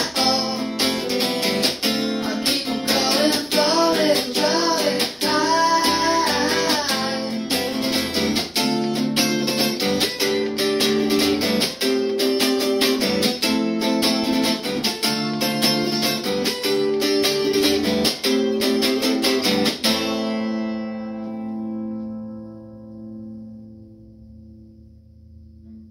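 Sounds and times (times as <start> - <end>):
person singing: 0.0 - 8.6
guitar strumming: 0.0 - 25.9.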